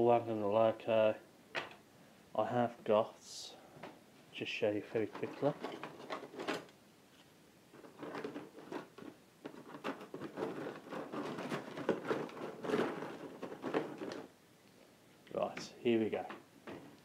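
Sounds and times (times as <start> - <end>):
rustling while rummaging: 4.9 - 14.4.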